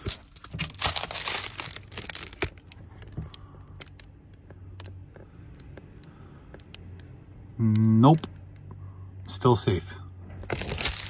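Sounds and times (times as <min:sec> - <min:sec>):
crinkly window covering rustling: 0:00.0 - 0:04.1, 0:10.4 - 0:11.0.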